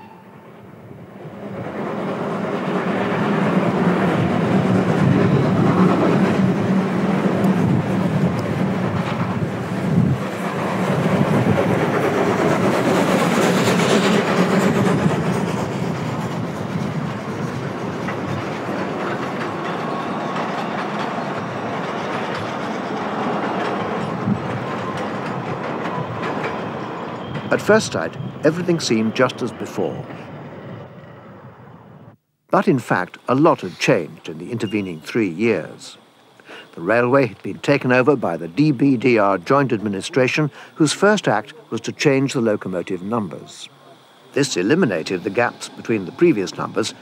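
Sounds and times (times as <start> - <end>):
steam locomotive passing: 0.0 - 32.0, 32.7 - 47.0
wheels clattering on rails: 1.3 - 28.6
steam hiss: 32.8 - 47.0.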